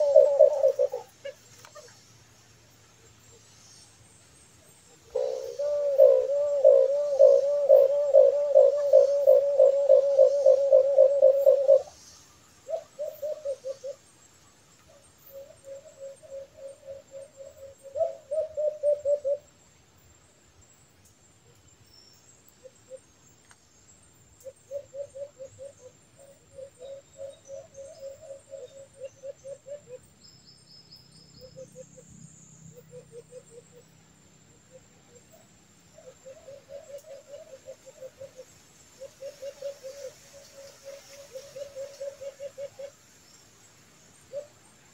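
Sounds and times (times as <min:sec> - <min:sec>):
doves cooing: 0:00.0 - 0:02.0, 0:05.1 - 0:12.0, 0:12.7 - 0:14.0, 0:16.0 - 0:19.4, 0:36.0 - 0:43.0.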